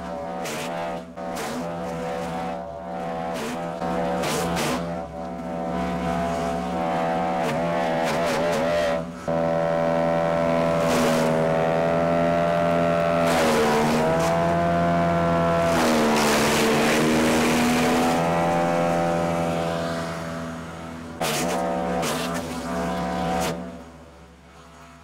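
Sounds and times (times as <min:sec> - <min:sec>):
wood chipper engine running: 0:09.3 - 0:22.0.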